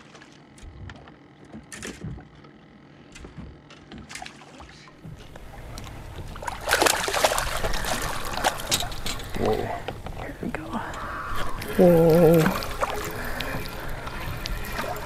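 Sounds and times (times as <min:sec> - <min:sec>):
water splashing against boat: 0:00.0 - 0:15.0.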